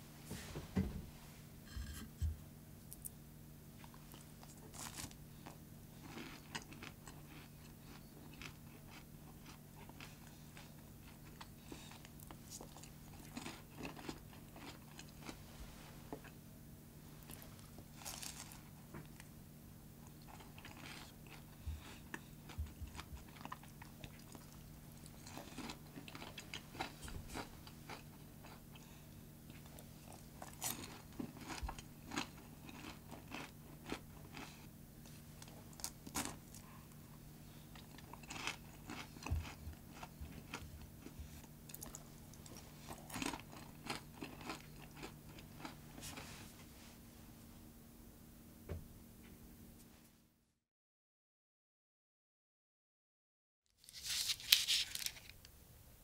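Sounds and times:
person chewing crunchy pastry: 3.8 - 15.5, 17.1 - 46.4.

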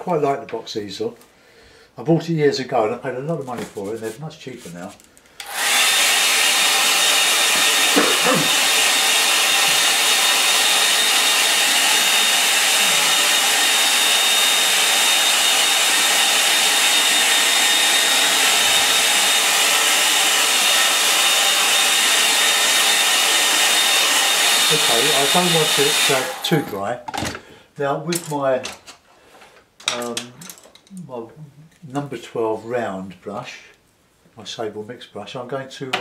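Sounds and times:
hair dryer blowing: 5.4 - 26.8.

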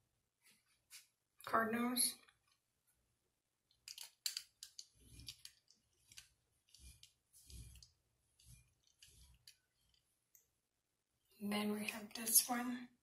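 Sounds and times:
glass bottle scraping on tabletop: 4.8 - 10.0.

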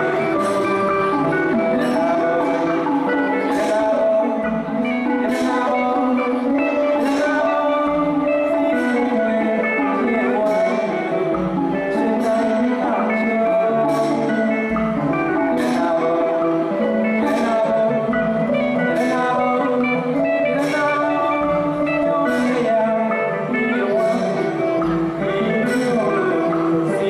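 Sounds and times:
man singing into microphone: 0.0 - 27.0
plucked strings: 0.0 - 27.0.

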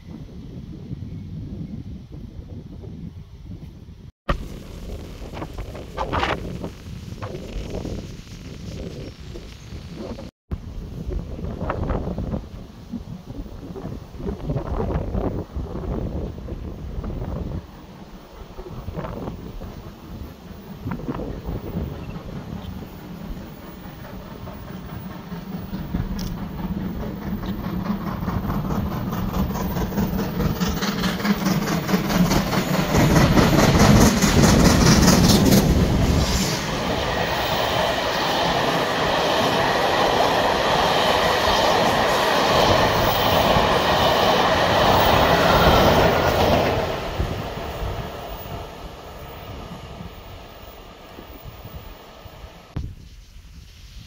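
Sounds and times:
steam locomotive exhaust beats: 4.3 - 54.0
train wheels clickety-clacking: 18.4 - 51.9.

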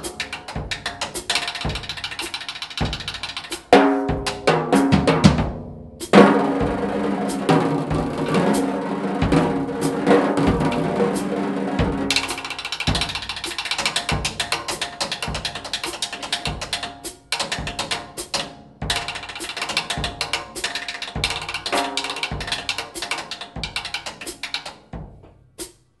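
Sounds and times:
cymbal ticking: 0.0 - 4.6, 6.0 - 25.0
bass drum thump: 4.1 - 13.3, 25.0 - 25.4.

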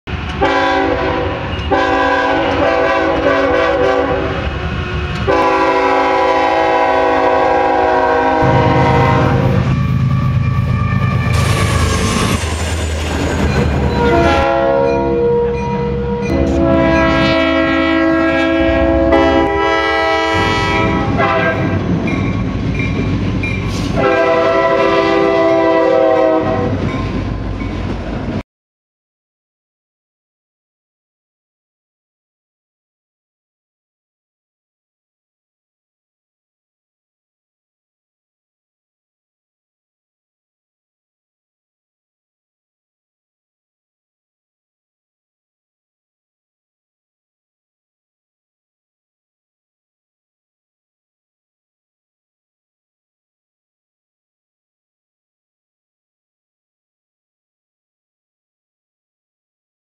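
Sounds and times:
train engine rumble and rail noise: 0.1 - 28.4
locomotive air horn blasts: 0.4 - 12.2, 13.9 - 21.8, 23.7 - 26.8.

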